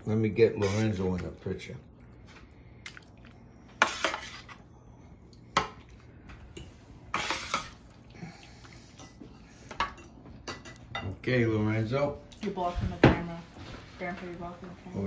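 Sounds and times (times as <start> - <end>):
metal utensil scraping metal pan: 3.8 - 4.6.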